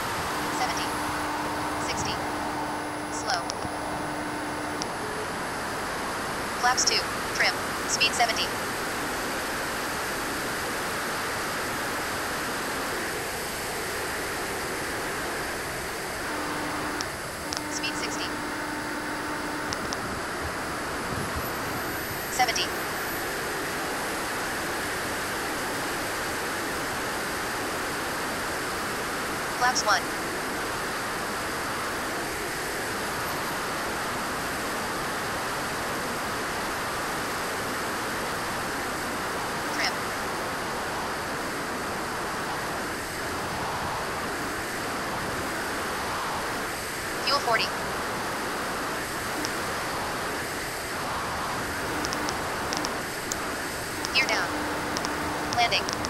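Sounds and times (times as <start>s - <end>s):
airflow rushing: 0.0s - 6.3s
turbine jet engine running: 0.0s - 30.6s, 38.6s - 56.0s.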